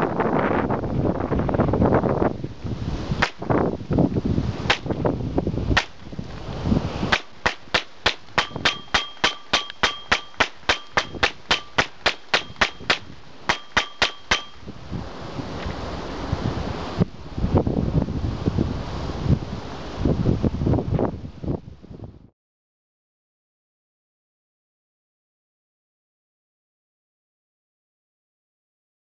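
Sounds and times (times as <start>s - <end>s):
gunshots: 7.1s - 14.6s.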